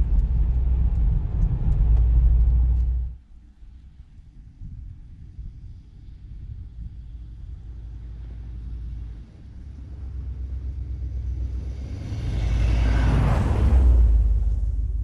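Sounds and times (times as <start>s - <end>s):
car engine rumbling driving by: 7.0s - 15.0s.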